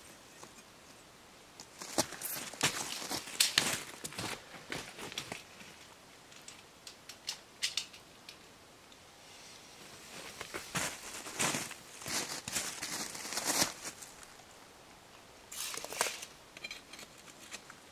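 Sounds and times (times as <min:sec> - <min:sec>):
boots crunching on gravel: 0:01.8 - 0:05.1, 0:10.4 - 0:14.3.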